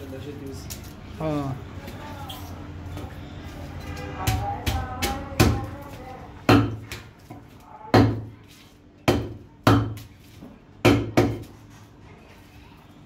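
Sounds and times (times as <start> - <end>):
cleaver chopping on wooden block: 6.5 - 7.1, 9.0 - 10.1, 10.8 - 11.5.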